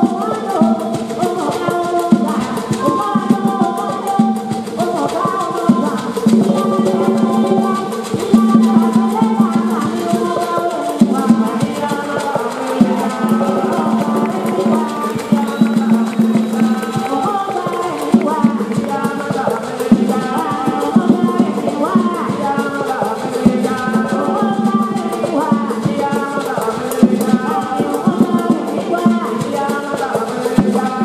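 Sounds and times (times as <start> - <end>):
group of voices singing: 0.0 - 31.0
drums: 11.0 - 31.0.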